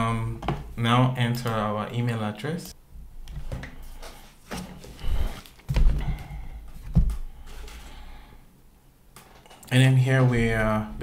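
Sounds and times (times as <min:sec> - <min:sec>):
low room rumble: 0:02.7 - 0:11.0.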